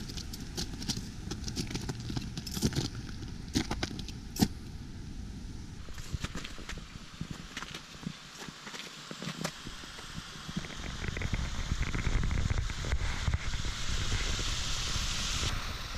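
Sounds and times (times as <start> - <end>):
spiked boots clicking on ice: 0.0 - 4.6.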